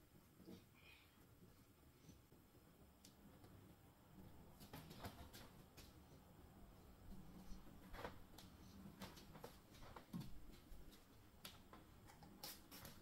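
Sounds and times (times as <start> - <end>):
hair rustling and tapping: 4.2 - 13.0.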